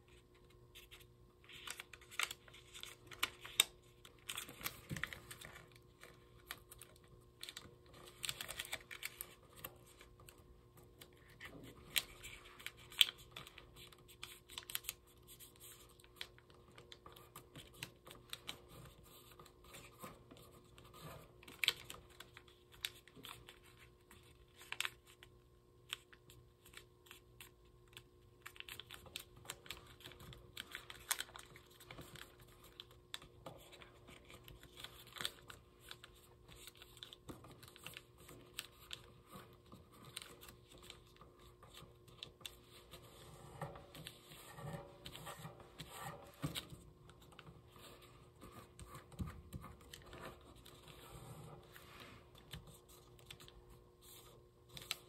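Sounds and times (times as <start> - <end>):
soft paper rustling: 0.0 - 55.0
paper being folded: 0.1 - 25.3, 25.9 - 55.0
paper crinkling and clicking: 0.1 - 55.0.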